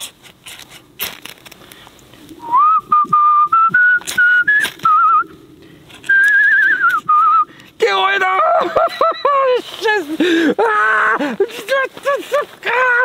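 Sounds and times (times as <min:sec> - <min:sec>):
ferro rod scraping: 0:00.0 - 0:01.7
man whistling a tune: 0:02.4 - 0:05.3, 0:06.0 - 0:07.5.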